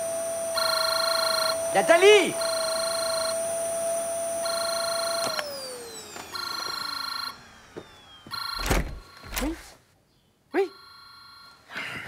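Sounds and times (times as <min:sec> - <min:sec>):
phone ringing electronically: 0:00.5 - 0:03.6, 0:04.4 - 0:05.6, 0:06.2 - 0:07.6, 0:08.2 - 0:09.6, 0:10.6 - 0:12.0.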